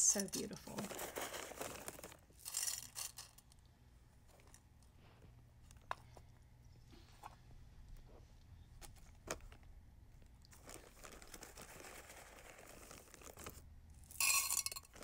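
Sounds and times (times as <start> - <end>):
plastic bag crinkling: 0.0 - 3.4, 10.5 - 13.6
pebbles clattering into ceramic planter: 0.0 - 3.6, 10.7 - 15.0.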